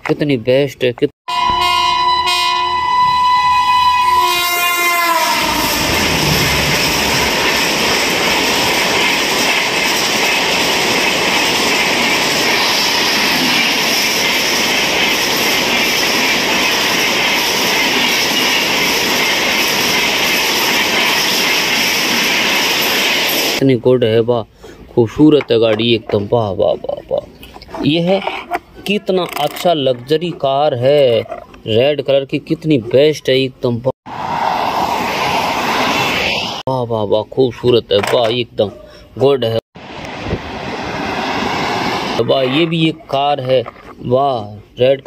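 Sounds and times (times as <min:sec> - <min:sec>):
train horn: 0:01.3 - 0:07.3
train running: 0:01.3 - 0:23.6, 0:39.8 - 0:44.8.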